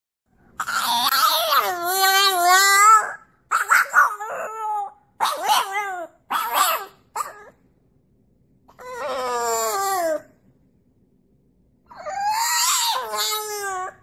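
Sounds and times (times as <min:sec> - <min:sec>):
puppy howling: 0:00.6 - 0:07.6, 0:08.7 - 0:10.4, 0:11.9 - 0:14.0.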